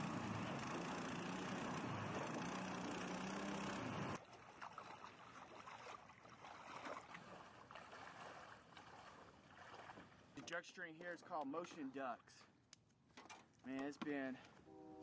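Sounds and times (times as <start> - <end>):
boat motor droning: 0.0 - 5.7
water sloshing from wading: 0.3 - 10.6.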